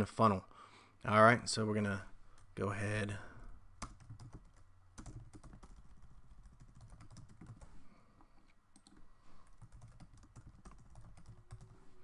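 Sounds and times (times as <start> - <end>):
typing on a computer keyboard: 3.8 - 7.7, 8.7 - 9.0, 9.6 - 11.8.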